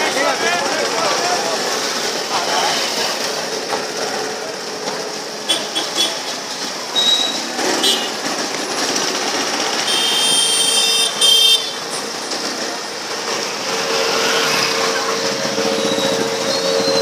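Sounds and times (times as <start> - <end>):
motorbike and scooter engines: 0.0 - 17.0
vehicle horns honking: 5.5 - 6.4, 7.0 - 8.2, 9.8 - 11.9.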